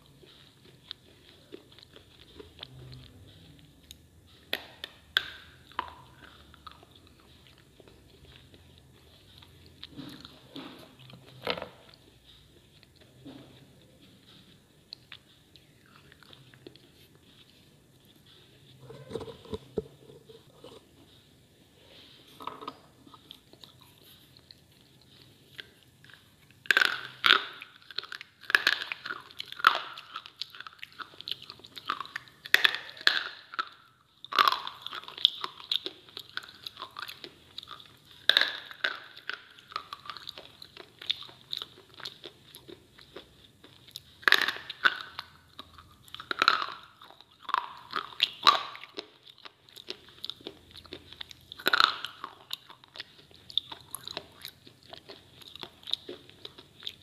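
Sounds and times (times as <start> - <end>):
grinding chews: 0.0 - 57.0.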